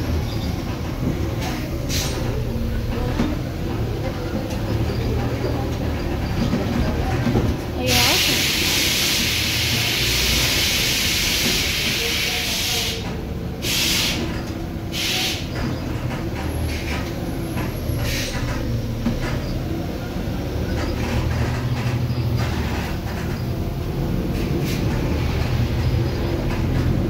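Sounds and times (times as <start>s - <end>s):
bus diesel engine running: 0.0s - 27.0s
compressed air hissing: 7.9s - 15.5s.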